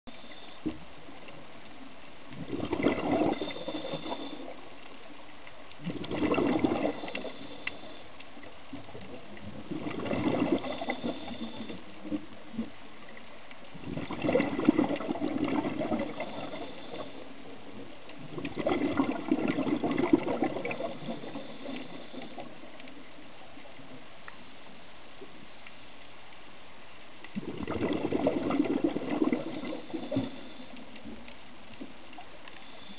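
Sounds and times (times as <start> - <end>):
steady low background noise: 0.1 - 32.9
diver exhaling bubbles: 2.4 - 4.5, 5.8 - 7.6, 9.6 - 11.8, 13.7 - 17.1, 18.2 - 22.5, 27.4 - 30.8.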